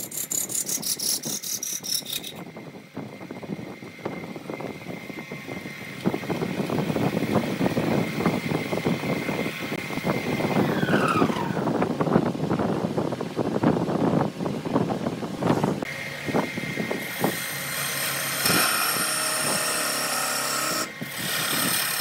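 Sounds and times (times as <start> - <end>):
gouge cutting wood: 0.0 - 2.4, 17.0 - 22.0
lathe whine: 15.5 - 22.0.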